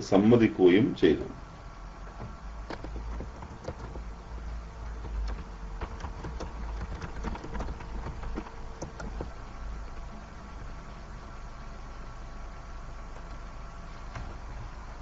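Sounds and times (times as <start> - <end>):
low hum: 0.0 - 15.0
faint clicks and crackles: 2.0 - 10.2.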